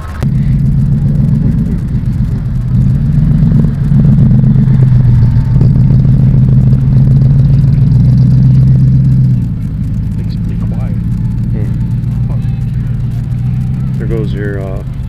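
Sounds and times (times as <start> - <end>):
vehicle engine droning: 0.0 - 15.0.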